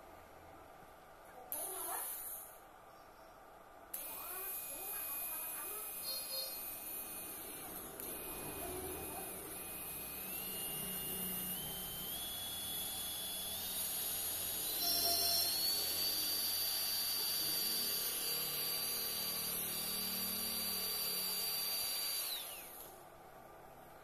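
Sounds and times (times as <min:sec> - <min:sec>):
small motor whining: 0:04.0 - 0:23.0.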